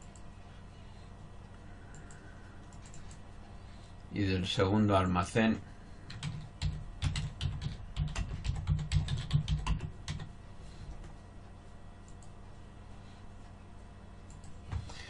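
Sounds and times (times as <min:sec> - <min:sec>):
computer keyboard typing: 0:01.9 - 0:03.2, 0:06.1 - 0:10.3.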